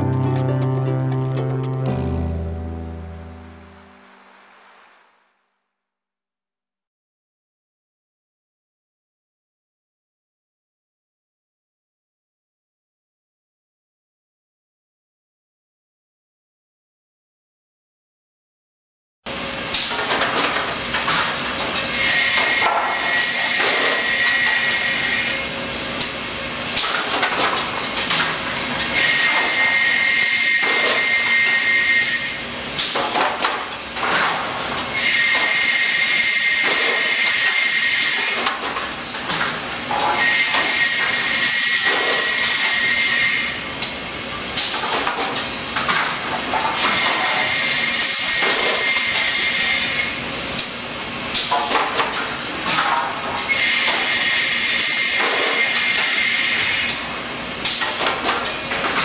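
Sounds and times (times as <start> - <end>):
saw line machinery running: 21.1 - 27.3, 34.9 - 44.8, 46.6 - 50.5, 52.7 - 58.4.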